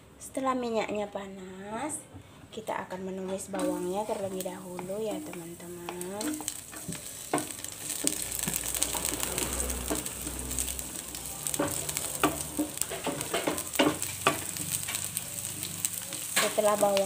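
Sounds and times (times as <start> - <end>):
garlic sizzling in oil: 3.5 - 17.0
wooden spatula stirring: 3.6 - 17.0.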